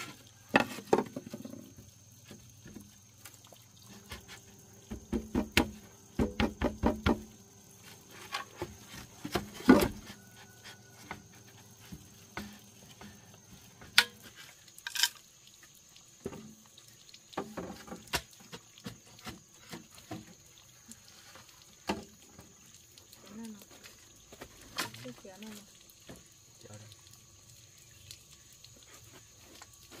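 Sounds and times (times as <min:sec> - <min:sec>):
light knocks and taps: 0:04.0 - 0:07.4.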